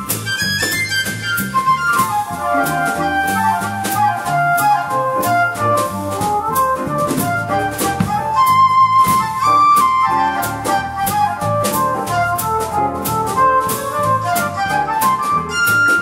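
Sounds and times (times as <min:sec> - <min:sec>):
bass line: 0:00.0 - 0:15.8
lead melody line: 0:02.4 - 0:15.0.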